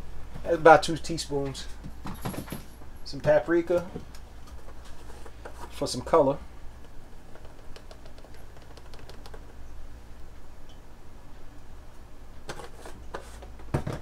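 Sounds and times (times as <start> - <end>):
plastic shaker clicking and rattling: 7.3 - 9.6.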